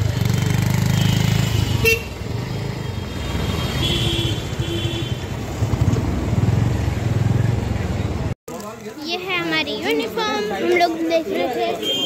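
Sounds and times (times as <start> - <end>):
vehicle horn beeps: 11.8 - 12.0.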